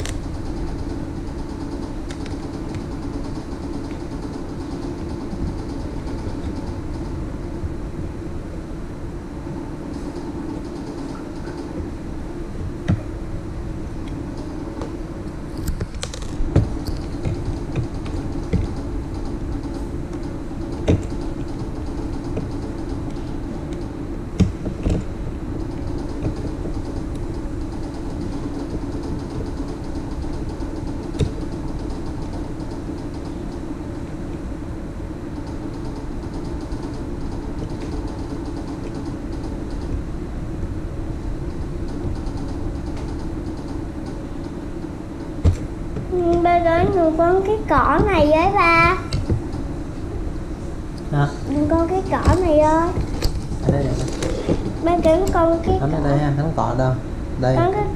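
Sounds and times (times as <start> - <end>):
low mechanical hum: 0.0 - 57.9.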